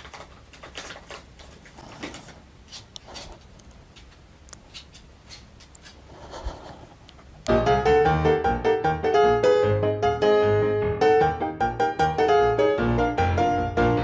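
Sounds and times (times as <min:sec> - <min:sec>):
dog claws clicking on wood: 0:00.0 - 0:06.1.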